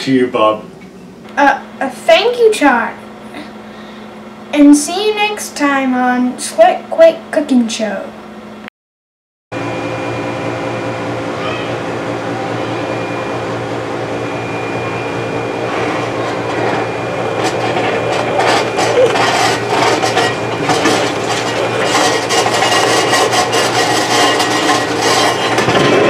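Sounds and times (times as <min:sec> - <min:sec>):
microwave oven humming: 0:00.0 - 0:08.7, 0:09.6 - 0:26.0
crackling and rasping: 0:15.1 - 0:26.0.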